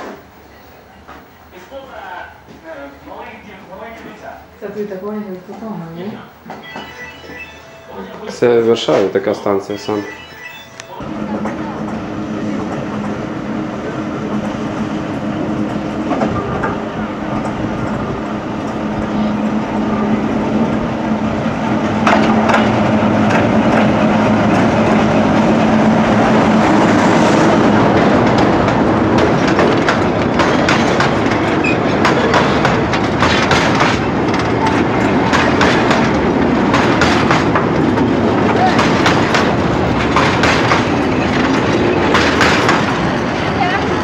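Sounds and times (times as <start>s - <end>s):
diesel locomotive engine drone: 9.8s - 44.0s
train wheels clacking over rail joints: 21.7s - 44.0s.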